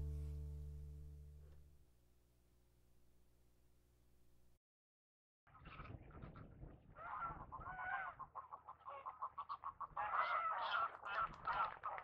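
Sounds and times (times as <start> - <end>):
geese honking: 7.0 - 11.8.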